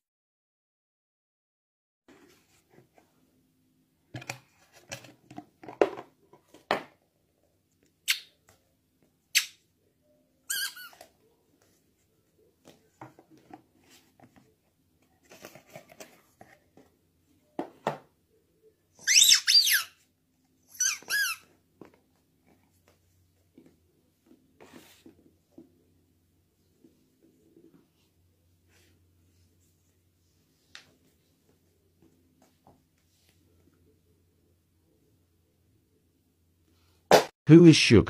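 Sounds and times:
squeaky dog toy squeaks: 10.4s - 11.0s, 19.0s - 20.0s, 20.7s - 21.5s.

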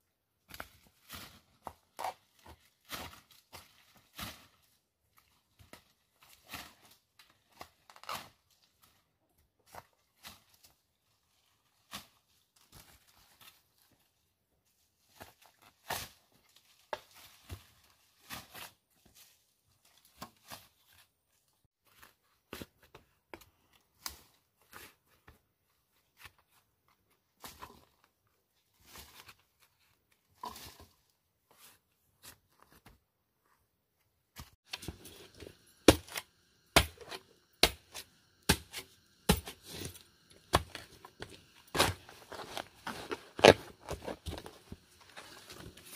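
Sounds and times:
digging tool striking dry earth: 34.6s - 44.6s.

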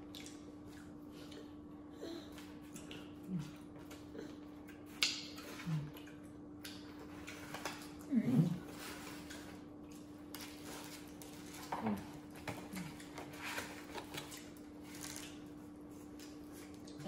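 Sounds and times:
faint steady hum: 0.0s - 17.0s
soft clicks and rustles of eating: 0.0s - 17.0s.

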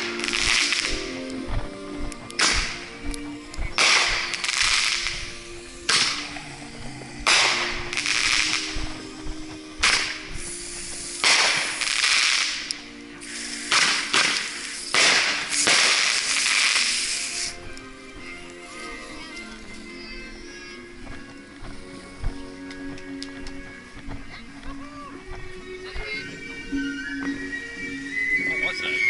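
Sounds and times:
fireworks bangs: 0.0s - 1.2s, 2.4s - 3.0s, 3.7s - 6.4s, 7.2s - 9.0s, 9.8s - 12.7s, 13.3s - 17.6s
fireworks crackling: 0.0s - 24.6s.

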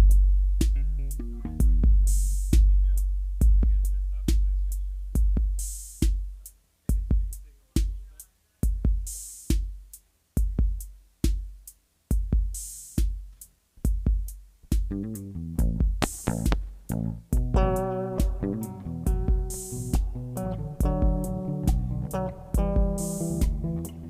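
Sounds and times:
deep booming kick drums: 0.0s - 7.3s, 13.9s - 23.8s.

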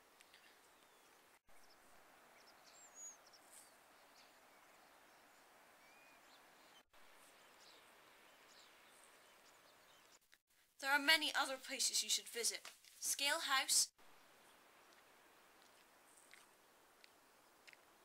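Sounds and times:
faint bird chirps: 0.2s - 10.2s.

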